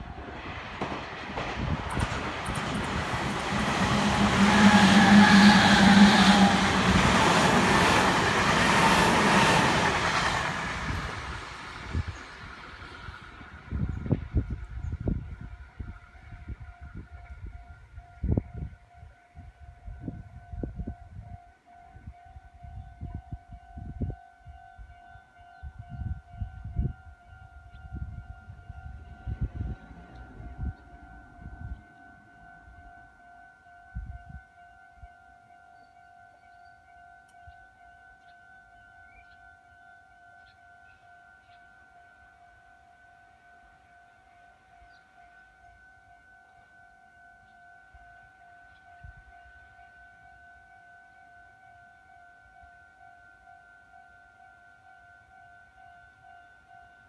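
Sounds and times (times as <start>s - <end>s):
train wheels rumbling on rail: 0.0s - 18.8s, 27.6s - 33.0s
low rumbles: 28.1s - 32.9s.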